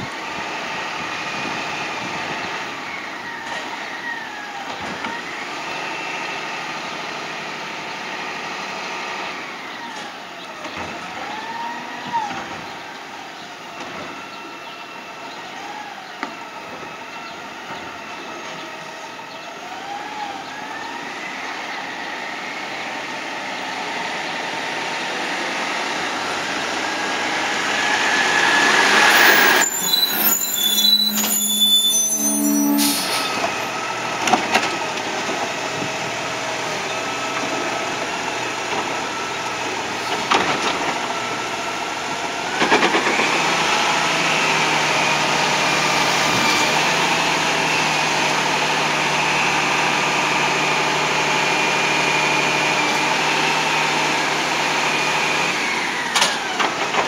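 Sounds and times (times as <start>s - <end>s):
garbage truck engine: 0.0s - 57.0s
rising whine: 27.4s - 34.0s
air brakes hissing: 28.8s - 33.8s.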